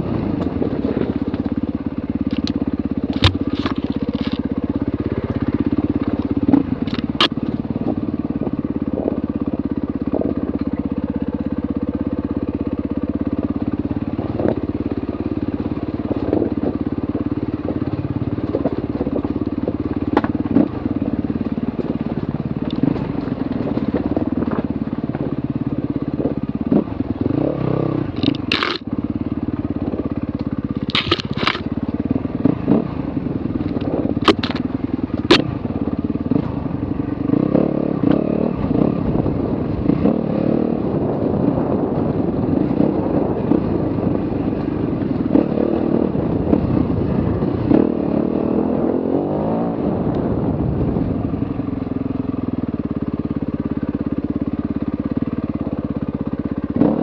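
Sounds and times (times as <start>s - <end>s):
motorcycle engine running: 0.0s - 57.0s
sharp clicks and knocks: 2.3s - 4.4s, 6.1s - 7.6s, 28.2s - 28.9s, 30.4s - 31.7s, 33.7s - 34.6s.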